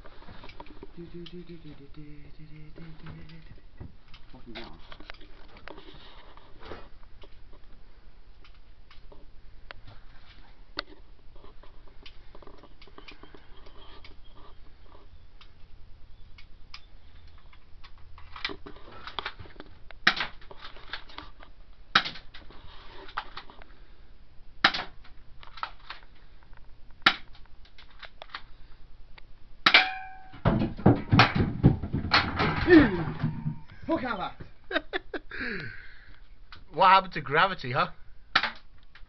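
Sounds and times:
gun handling clicks and rattles: 16.3s - 23.7s, 24.6s - 28.6s, 38.4s - 39.0s.

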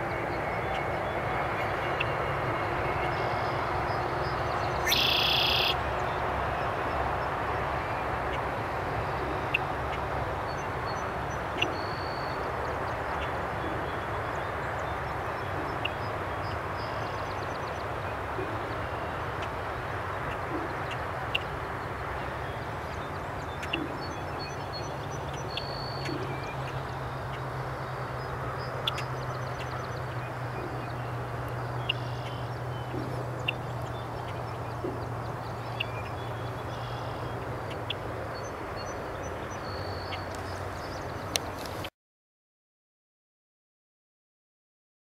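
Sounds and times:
low engine drone: 0.0s - 41.6s
blackbird calls and trills: 3.2s - 6.1s, 9.2s - 19.5s, 20.2s - 41.4s.

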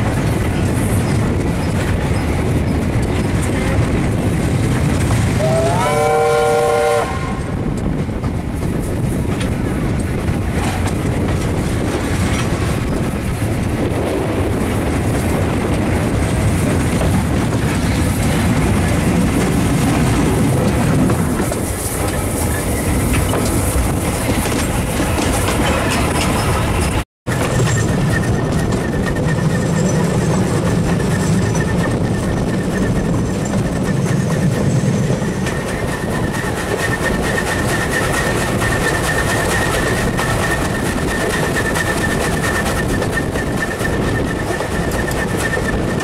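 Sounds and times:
train rumbling: 0.0s - 46.0s
wind: 0.0s - 46.0s
steam whistle chord: 5.4s - 7.4s.

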